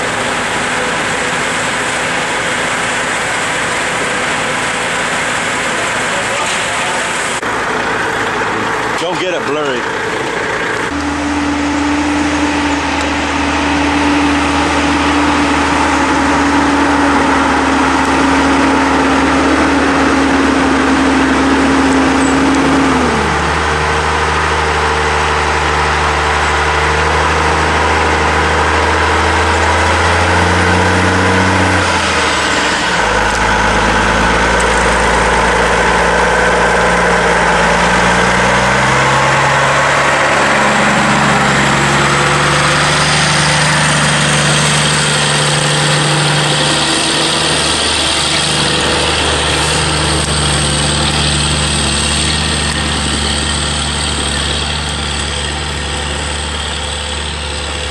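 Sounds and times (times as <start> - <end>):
diesel truck engine passing: 0.0 - 57.9.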